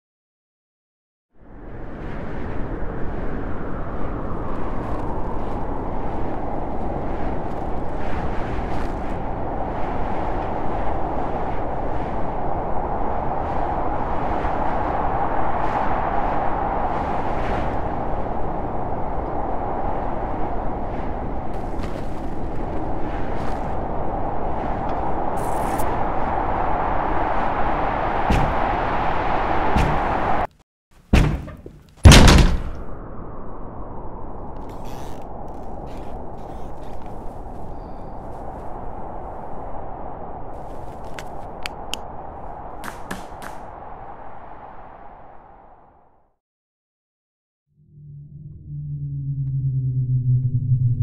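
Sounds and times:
strong blizzard wind whistling: 1.3s - 30.5s, 32.6s - 46.4s, 47.8s - 51.0s
dull thump: 28.3s - 28.6s, 31.1s - 32.8s.

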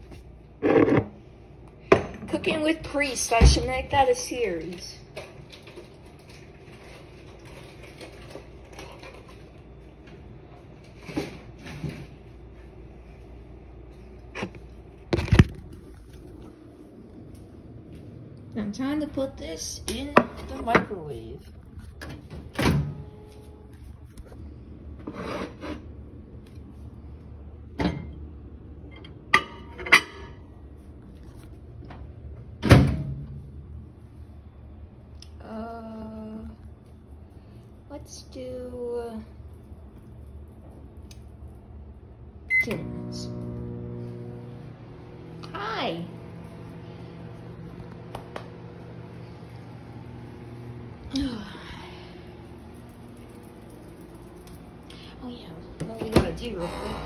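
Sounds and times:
steady low hum: 0.0s - 57.0s
microwave door shutting: 22.0s - 23.1s, 32.6s - 33.3s.

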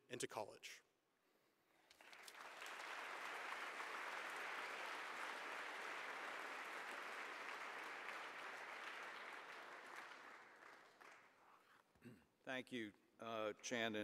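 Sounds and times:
audience applauding: 1.9s - 11.7s.

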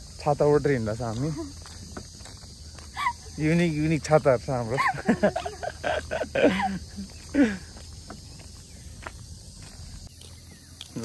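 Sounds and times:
voices: 0.0s - 8.4s
insects chirring: 0.0s - 11.0s
soft footsteps: 0.8s - 11.0s.

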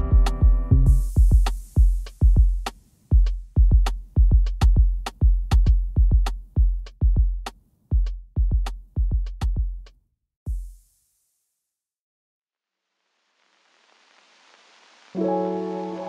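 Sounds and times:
drum machine beat: 0.0s - 9.9s, 10.5s - 11.0s.

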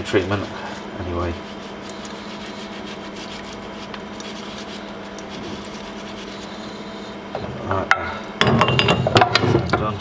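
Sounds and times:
low steady hum: 0.0s - 10.0s
running tap water splashing: 0.0s - 10.0s
toothbrush scrubbing metal nut: 0.1s - 6.7s.

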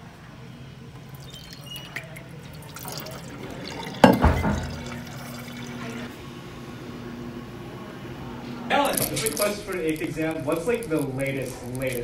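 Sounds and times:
steady hum: 0.0s - 12.0s
water running into metal bottle: 1.0s - 6.1s
thump: 4.0s - 4.8s.

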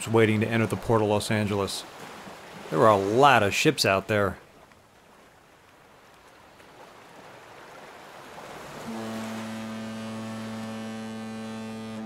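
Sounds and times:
surf washing: 0.0s - 12.0s
deep ship's horn: 8.6s - 12.0s.

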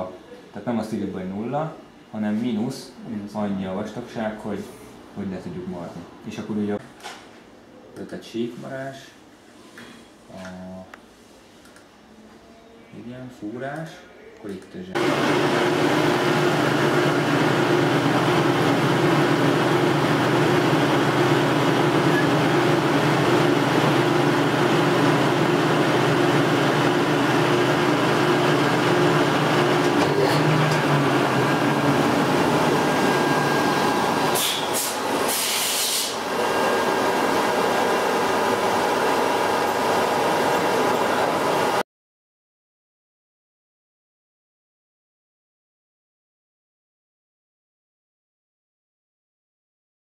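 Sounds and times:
metal lathe running: 15.0s - 35.2s, 36.1s - 41.8s
short hissing bursts: 34.3s - 36.2s.

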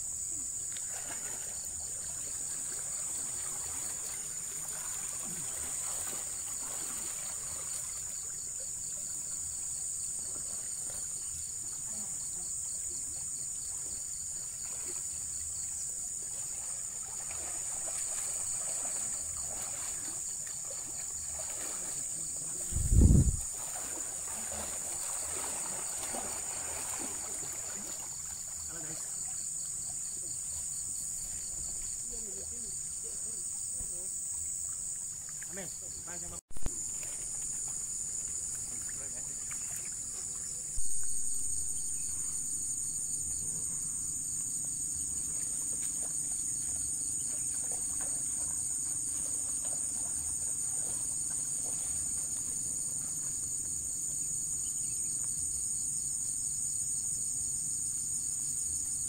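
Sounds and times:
insect chorus: 0.0s - 59.0s
people wading in water: 0.2s - 55.5s
low thump: 40.8s - 42.2s.

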